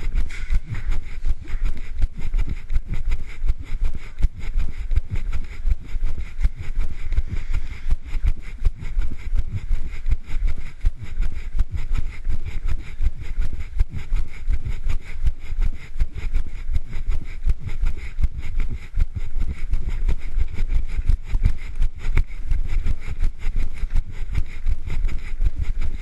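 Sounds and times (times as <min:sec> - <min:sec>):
running footstep thuds: 0:00.0 - 0:15.4
wind on microphone: 0:00.0 - 0:26.0.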